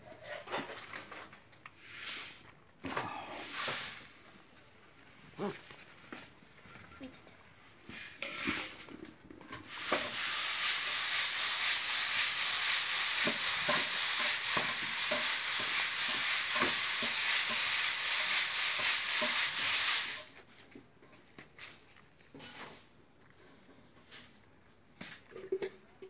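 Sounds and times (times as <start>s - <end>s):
steady loud hiss: 9.8s - 20.4s.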